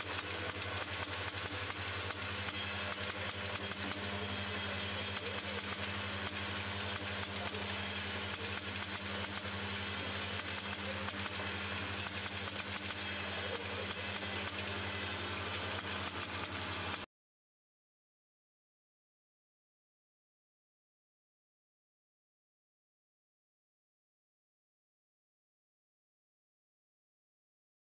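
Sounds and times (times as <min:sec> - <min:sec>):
hiss: 0:00.0 - 0:17.0
low machine hum: 0:00.0 - 0:17.0.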